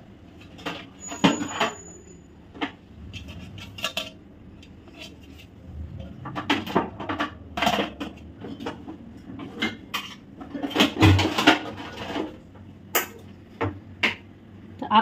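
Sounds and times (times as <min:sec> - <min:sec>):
kitchenware clinking and knocking: 0:06.0 - 0:14.2.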